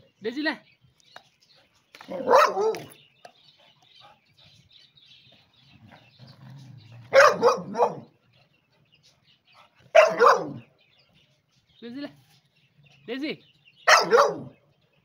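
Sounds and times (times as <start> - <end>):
dogs barking: 2.0 - 3.0, 6.0 - 8.3, 9.5 - 10.8, 13.8 - 14.7
dog growling: 5.6 - 8.0.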